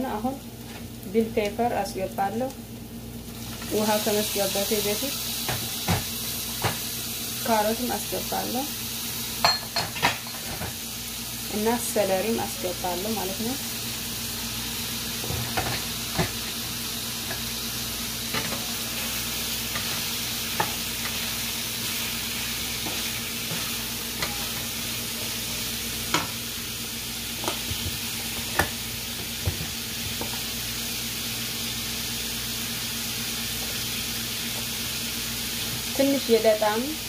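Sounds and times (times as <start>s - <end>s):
vegetables sizzling in a frying pan: 0.0s - 37.0s
wooden spatula knocking on pan: 29.4s - 30.4s.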